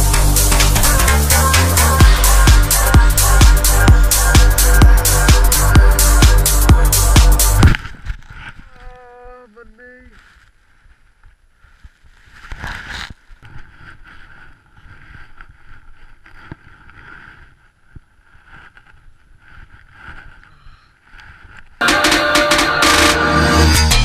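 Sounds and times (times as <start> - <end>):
snow scuffing against camera: 9.8 - 21.8.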